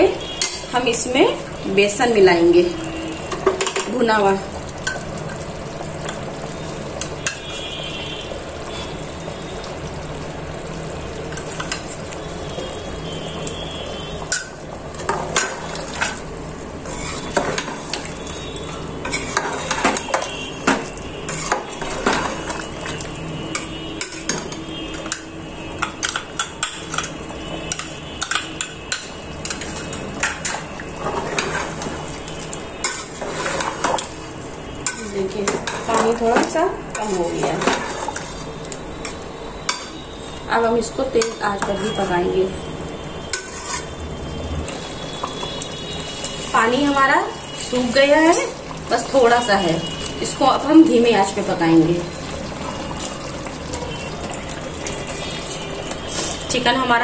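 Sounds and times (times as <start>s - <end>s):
curry sizzling in a pot: 0.0s - 57.0s
metal ladle scraping a pot: 16.8s - 25.2s, 25.8s - 34.1s, 34.8s - 40.0s, 43.2s - 44.0s, 54.8s - 56.5s.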